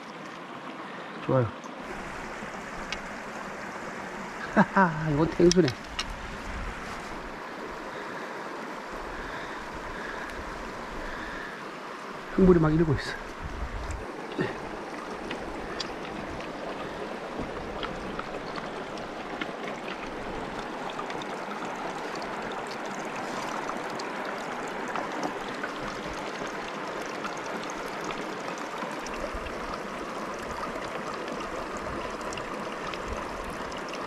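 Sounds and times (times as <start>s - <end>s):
water running over rocks: 0.0s - 34.0s
stones clicking and knocking: 5.4s - 6.2s.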